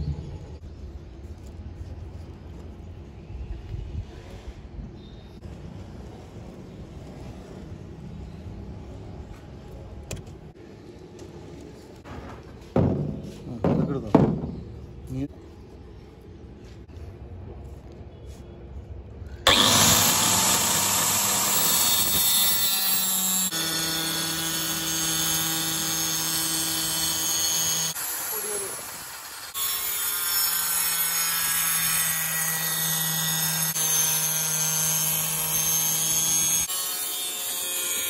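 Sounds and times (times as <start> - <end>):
circular saw cutting plywood: 19.5 - 38.0.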